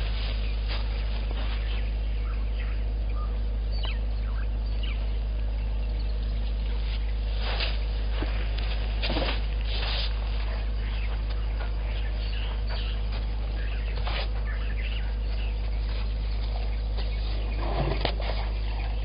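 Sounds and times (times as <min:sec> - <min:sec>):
rustling: 0:00.0 - 0:02.0, 0:06.5 - 0:11.8
faint bird chirps: 0:00.0 - 0:08.8, 0:10.1 - 0:19.0
steady low hum: 0:00.0 - 0:19.0.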